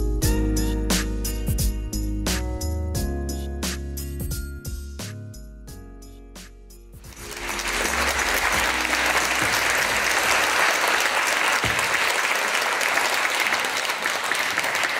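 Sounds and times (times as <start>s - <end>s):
audience applauding: 7.1s - 14.9s.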